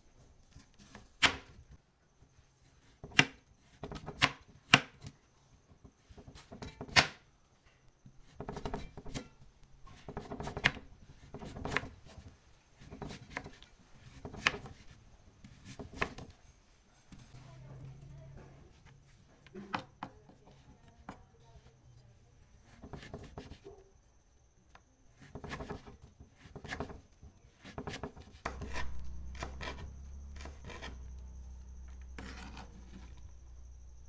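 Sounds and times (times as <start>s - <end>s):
knife slicing carrot: 9.9s - 16.3s, 25.2s - 31.1s.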